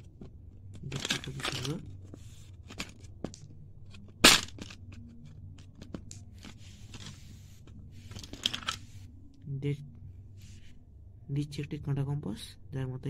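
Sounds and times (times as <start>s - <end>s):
metal box clicks and rattles: 0.0s - 2.0s, 2.6s - 6.5s, 8.2s - 8.8s.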